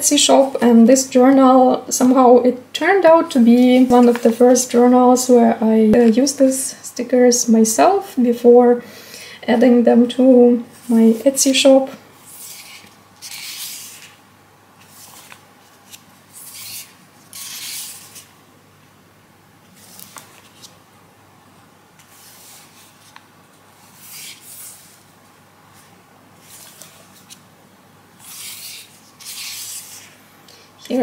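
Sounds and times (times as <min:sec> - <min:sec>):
paper pages rustling: 0:03.5 - 0:04.6, 0:14.8 - 0:18.4, 0:19.7 - 0:20.8, 0:22.0 - 0:25.1, 0:25.7 - 0:27.5.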